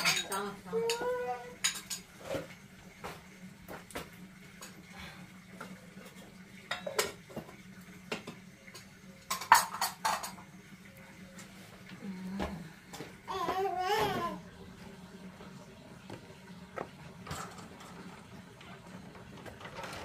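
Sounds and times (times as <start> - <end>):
dishes and utensils clinking: 0.0 - 2.6, 5.6 - 10.6, 17.2 - 18.2.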